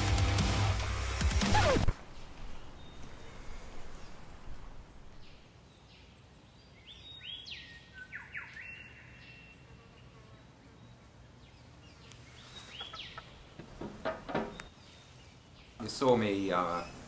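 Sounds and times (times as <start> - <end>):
faint outdoor background noise: 0.0 - 17.0
birds whistling sweeping notes: 1.4 - 5.5, 6.6 - 9.5, 16.4 - 17.0.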